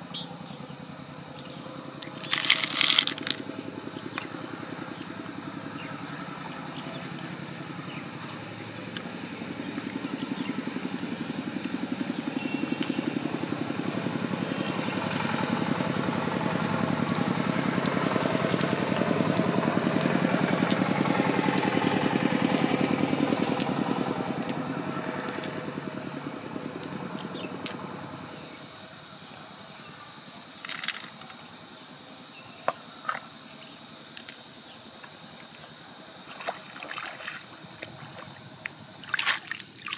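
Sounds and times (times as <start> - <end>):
engine passing by: 0.0 - 29.2.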